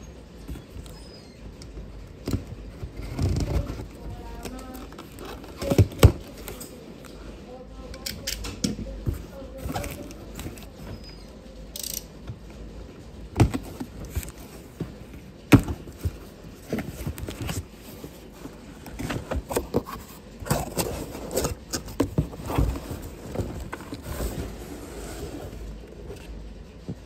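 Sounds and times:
cardboard box scraping and rustling: 0:13.5 - 0:26.1.

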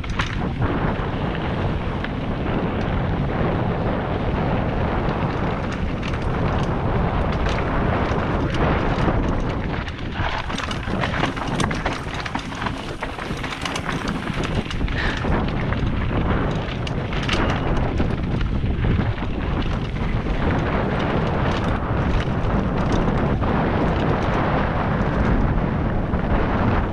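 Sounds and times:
bike rattling: 0:00.0 - 0:26.9
wind rumble on microphone: 0:00.0 - 0:26.9
tyres crunching over stones: 0:09.2 - 0:17.6.

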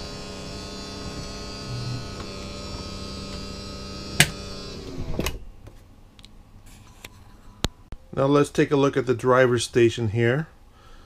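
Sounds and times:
slide-out motor humming: 0:00.0 - 0:05.5.

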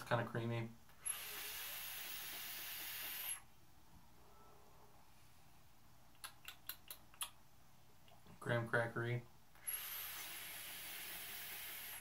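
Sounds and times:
vape hissing: 0:01.0 - 0:03.4, 0:09.6 - 0:12.0.

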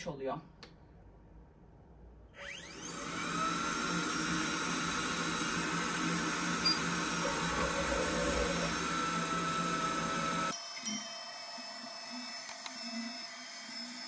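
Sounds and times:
suction fan hissing whine: 0:02.4 - 0:11.0.

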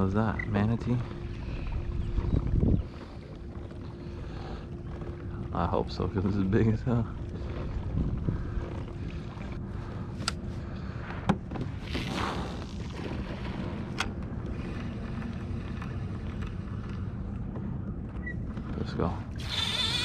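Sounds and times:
rush of water and wind: 0:00.0 - 0:04.1.

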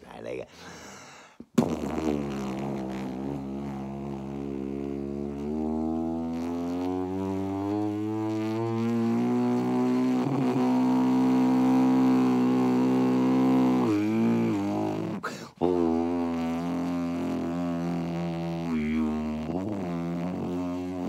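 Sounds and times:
man taking a breath: 0:00.5 - 0:01.5, 0:15.2 - 0:15.6
man droning hum: 0:01.6 - 0:21.0.

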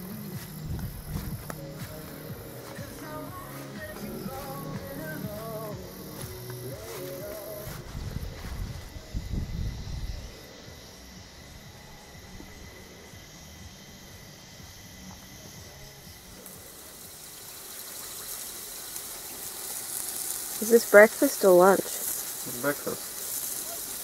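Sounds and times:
low steady hiss: 0:00.0 - 0:24.0
food frying in a pan: 0:16.4 - 0:24.0.

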